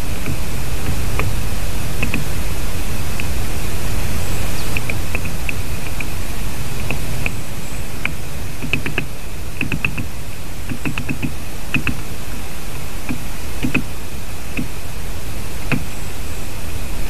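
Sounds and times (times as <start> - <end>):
woodpecker pecking at wood: 0.0 - 3.4, 4.6 - 12.2, 13.0 - 14.9, 15.6 - 16.0
steady background hiss: 0.0 - 17.0.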